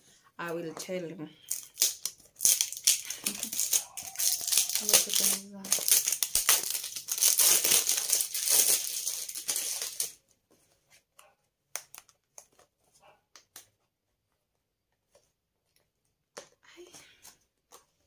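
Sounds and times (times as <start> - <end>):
plastic wrap crinkling: 1.4 - 10.2.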